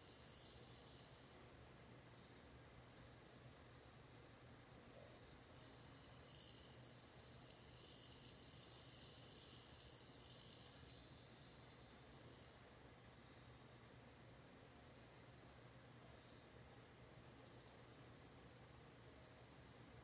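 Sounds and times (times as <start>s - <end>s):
cricket trilling: 0.0s - 1.5s, 5.6s - 12.8s.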